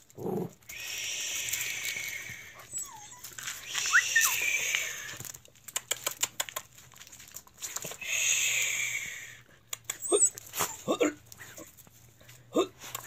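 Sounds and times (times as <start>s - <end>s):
dog whining: 1.4s - 5.3s, 9.8s - 11.7s
high hissing buzz: 3.6s - 5.2s.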